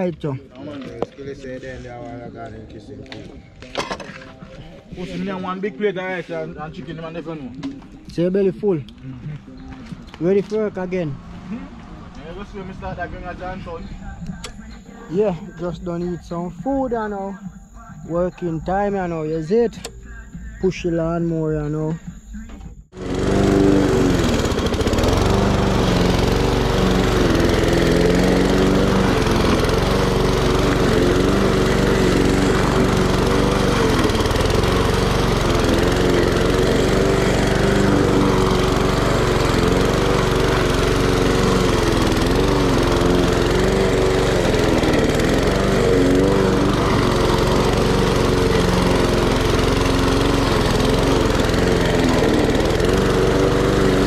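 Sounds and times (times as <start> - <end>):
lawn mower cutting grass: 3.1 - 13.8, 22.9 - 54.0.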